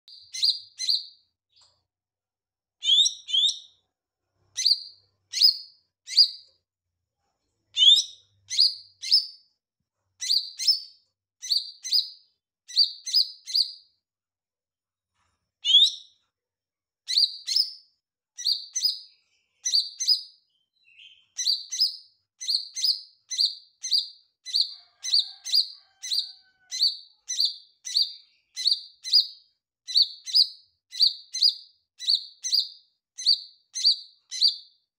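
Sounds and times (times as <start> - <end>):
bird singing whistled notes: 0.1 - 1.2, 2.8 - 3.7, 4.6 - 6.4, 10.2 - 13.8, 17.1 - 24.7, 26.8 - 34.7.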